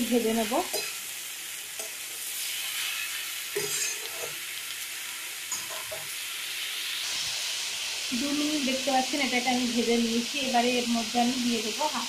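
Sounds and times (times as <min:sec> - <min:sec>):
vegetables sizzling in hot oil: 0:00.0 - 0:12.0
spatula scraping and knocking pan: 0:03.6 - 0:04.4.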